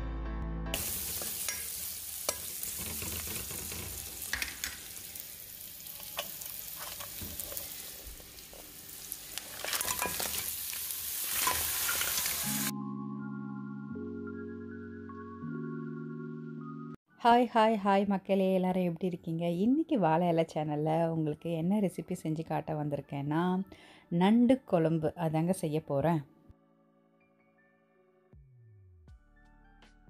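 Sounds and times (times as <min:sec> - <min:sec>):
food sizzling in a pan: 0:00.8 - 0:12.7
stirring clicks and scrapes: 0:02.3 - 0:04.8, 0:06.0 - 0:08.7.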